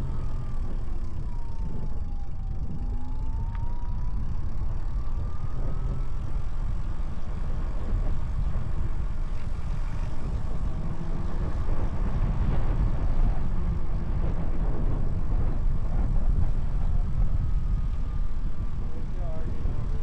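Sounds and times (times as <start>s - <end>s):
road noise: 0.0s - 20.0s
wind noise on microphone: 0.0s - 20.0s.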